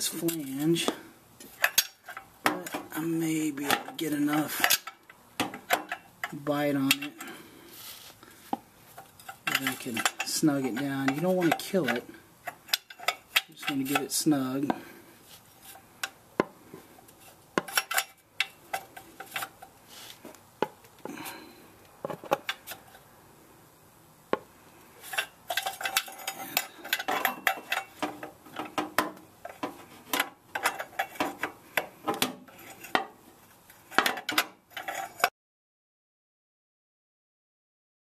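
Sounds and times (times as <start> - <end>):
wrench clinking on metal: 9.0 - 14.1, 25.0 - 31.5.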